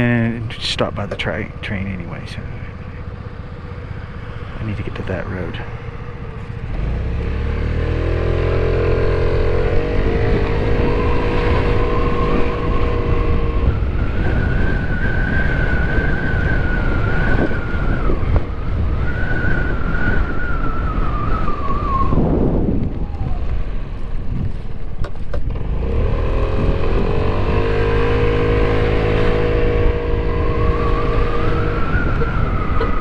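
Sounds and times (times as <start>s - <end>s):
wind and road noise: 0.0s - 33.0s
motor scooter engine accelerating: 5.2s - 14.7s, 25.2s - 33.0s.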